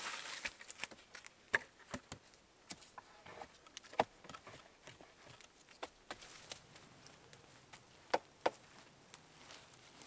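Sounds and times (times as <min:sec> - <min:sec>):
wooden poles knocking: 0:08.1 - 0:08.6.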